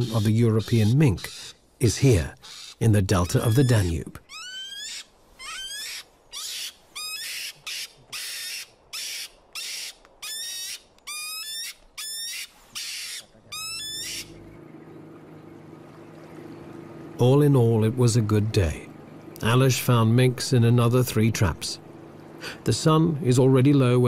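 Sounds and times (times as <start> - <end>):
mink screeching: 0.0 - 1.6, 2.3 - 14.4.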